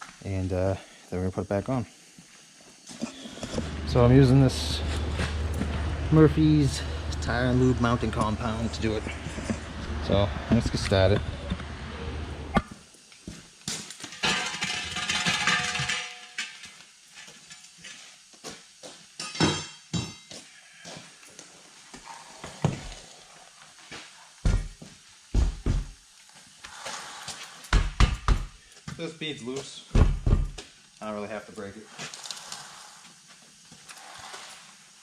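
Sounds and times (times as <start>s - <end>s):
steel tools clanking on wheel: 14.0s - 18.1s, 19.2s - 20.3s
heavy thumps: 25.4s - 26.0s, 29.9s - 30.6s.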